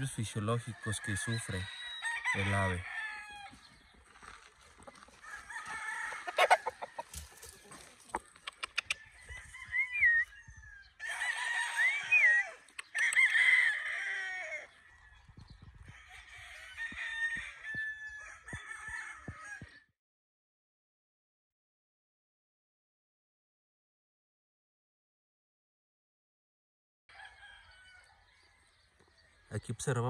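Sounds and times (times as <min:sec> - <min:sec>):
roosters crowing: 0:00.5 - 0:08.1, 0:08.8 - 0:19.8, 0:27.1 - 0:29.5.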